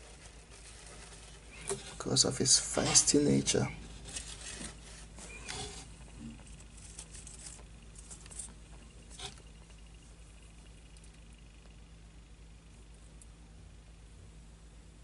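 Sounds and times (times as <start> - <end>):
tissue paper crinkling: 0.0 - 9.2.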